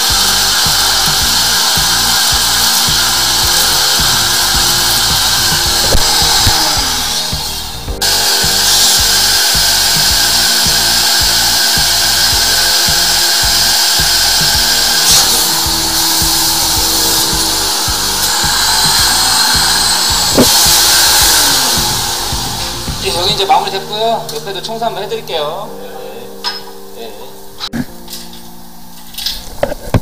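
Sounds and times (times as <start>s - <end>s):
drain-cleaning machine motor: 0.0s - 24.4s.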